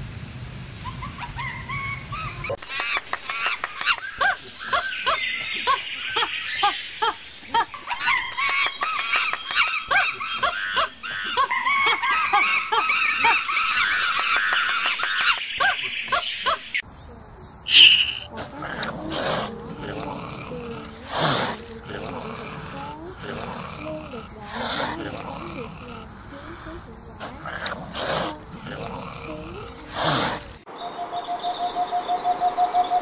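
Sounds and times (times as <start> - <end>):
lemurs chirping chorus: 7.8 - 30.7
low hum: 17.0 - 30.6.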